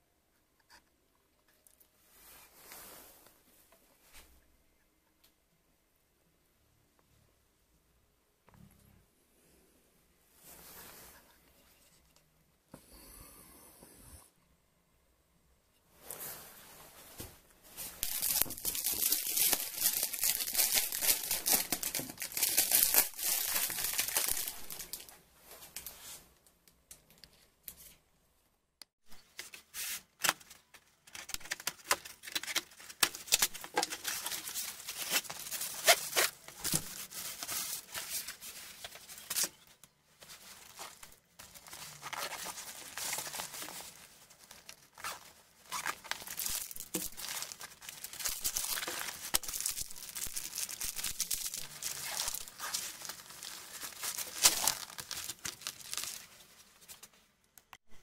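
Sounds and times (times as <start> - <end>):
plastic film crinkling and tearing: 18.0 - 25.2, 29.4 - 57.2.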